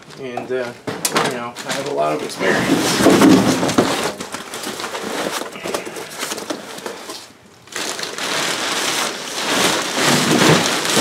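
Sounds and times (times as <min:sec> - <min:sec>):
rustling and crinkling of clutter: 0:00.0 - 0:11.0.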